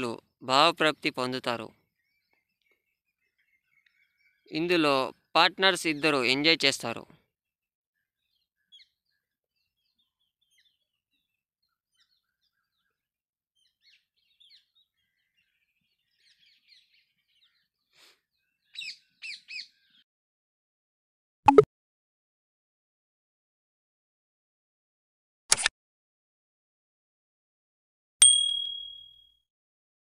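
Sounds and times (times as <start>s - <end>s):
birds chirping: 0.0s - 7.0s, 13.6s - 20.0s.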